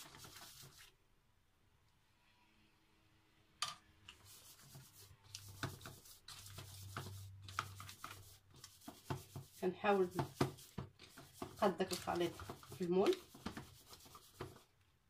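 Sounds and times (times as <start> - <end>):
spatula scraping batter: 4.1 - 14.7.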